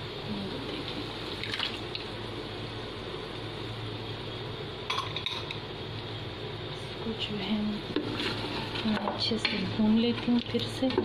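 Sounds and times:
food sizzling in a pot: 7.3 - 11.0.

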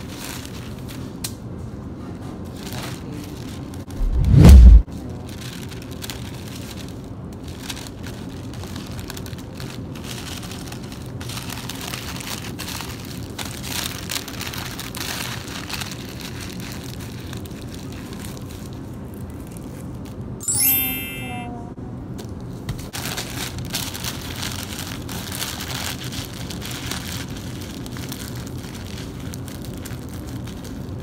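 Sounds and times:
steady background hum: 0.0 - 31.0
paper rustling and crinkling: 2.4 - 4.0, 22.8 - 31.0.

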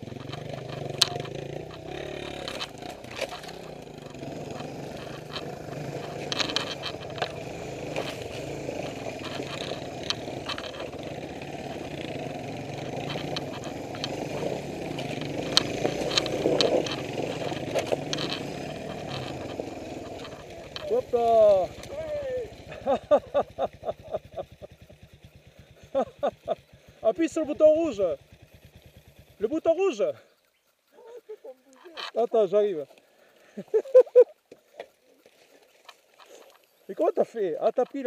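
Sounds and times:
branches scraping against bike: 0.0 - 23.2, 26.6 - 38.0
motorcycle engine at low revs: 0.0 - 38.0.

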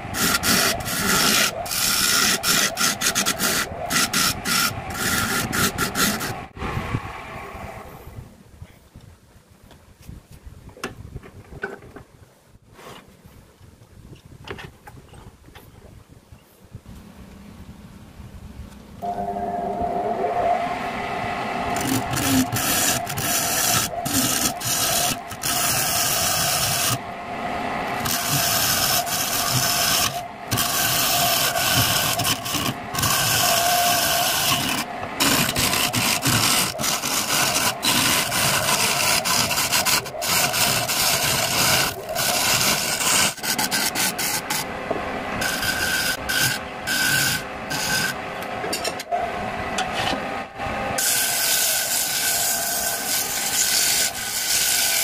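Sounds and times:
chisel scraping wooden bowl: 0.0 - 6.4, 21.7 - 27.0, 28.0 - 44.6, 45.4 - 48.2, 51.0 - 55.0
wood lathe running: 0.0 - 6.6, 19.1 - 48.4, 51.0 - 55.0.

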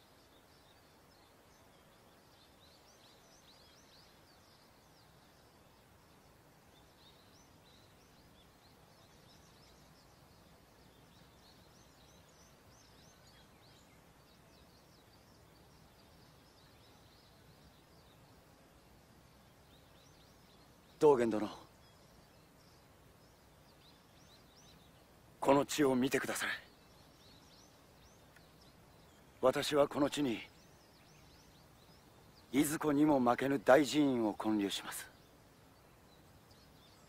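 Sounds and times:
low hiss: 0.0 - 37.0
small birds twittering: 0.0 - 37.0.

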